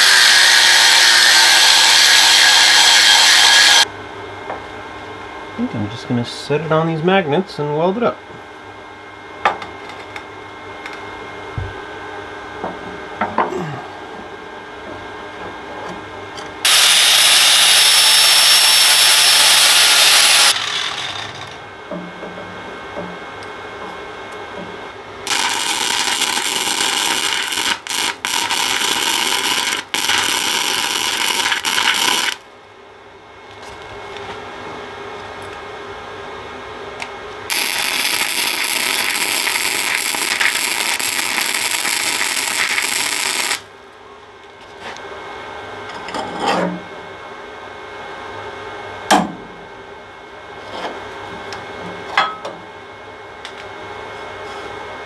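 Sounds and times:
electric arc welder sizzling: 0.0s - 3.9s, 16.6s - 21.6s, 25.2s - 32.4s, 37.5s - 43.7s.

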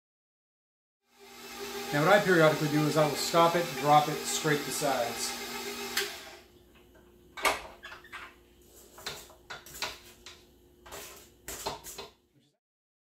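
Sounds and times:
spatula scraping metal bowl: 8.8s - 12.1s.

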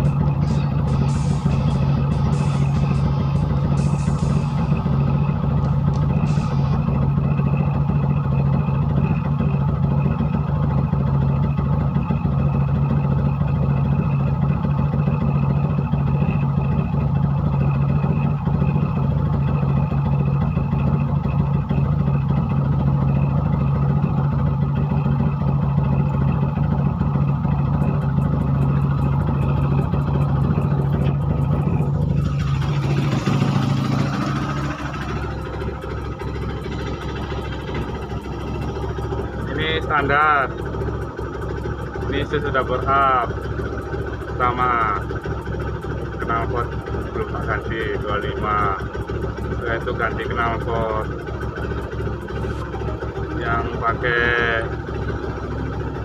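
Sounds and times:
motorcycle engine at high speed: 0.0s - 56.0s.

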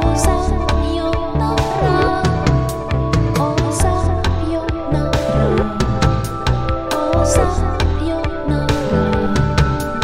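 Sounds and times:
pulsing bass line: 0.0s - 10.0s
synthesizer chords: 0.0s - 10.0s
sliding synth pitches: 1.2s - 4.2s, 4.8s - 7.8s.

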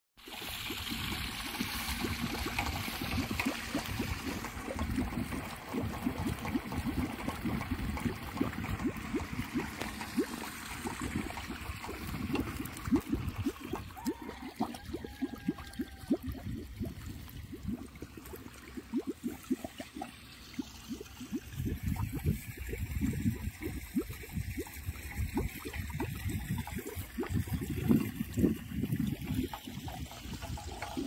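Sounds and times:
plastic wind spinner knocking and rattling: 1.4s - 14.2s, 27.3s - 31.0s.

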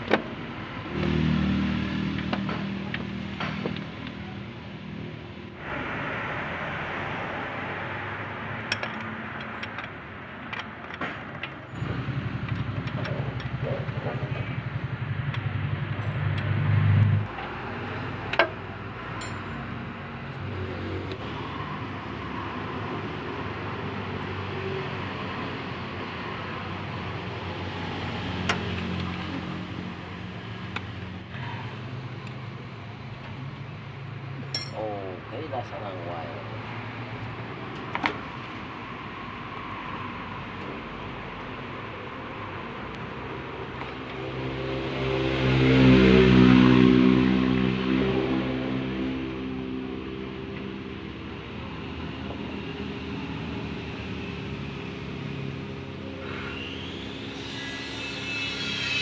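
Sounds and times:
vehicle engine running: 11.8s - 17.5s
hand tools clicking and clinking: 19.2s - 19.6s, 34.4s - 34.9s.

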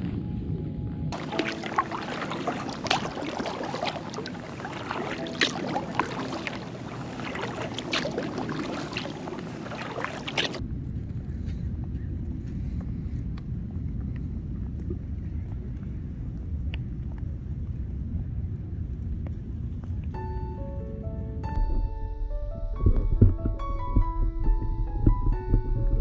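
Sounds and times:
low wind rumble on microphone: 0.0s - 26.0s
paddle water splashing: 1.2s - 10.6s.

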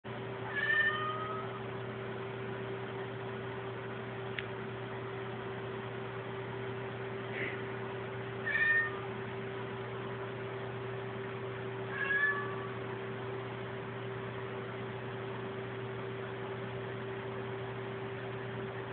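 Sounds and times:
steady low hum: 0.1s - 18.9s
cat meowing: 0.4s - 1.6s, 8.4s - 9.1s, 11.9s - 12.8s.

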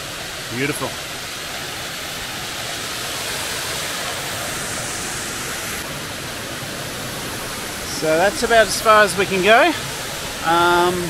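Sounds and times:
water rushing over rocks: 0.0s - 11.0s.

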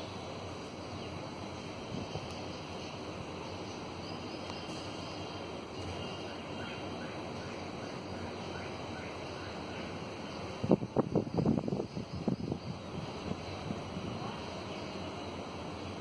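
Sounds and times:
low outdoor hiss: 0.0s - 16.0s
wind buffeting microphone: 1.6s - 2.7s, 10.4s - 15.0s.

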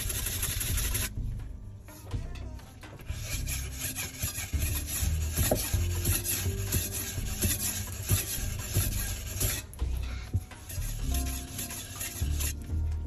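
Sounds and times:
knife scraping on whetstone: 0.0s - 1.1s, 2.9s - 9.8s, 10.6s - 12.8s.

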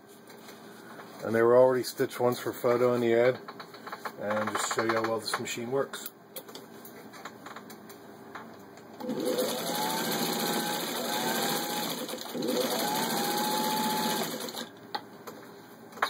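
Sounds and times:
sewing machine motor whine: 9.0s - 14.7s.

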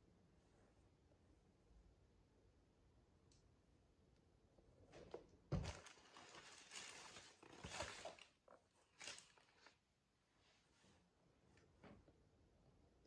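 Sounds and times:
tissue paper rustling: 5.6s - 9.8s.

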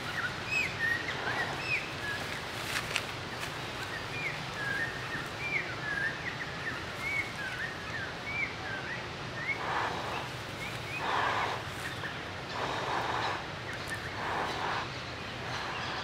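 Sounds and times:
outdoor background noise: 0.0s - 16.0s
bird chirping: 3.8s - 16.0s.

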